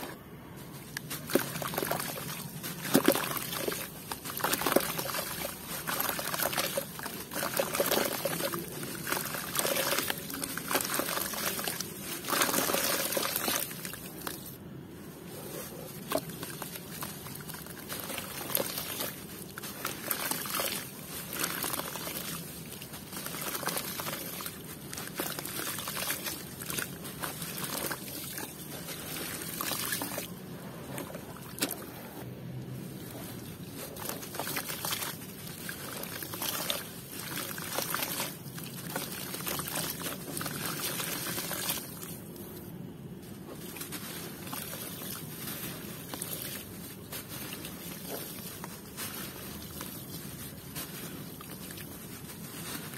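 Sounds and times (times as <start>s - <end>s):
water sloshing: 0.0s - 32.1s, 32.8s - 42.5s, 43.4s - 52.9s
dirt clumps plopping into water: 1.0s - 14.4s
small crackles: 32.9s - 52.9s.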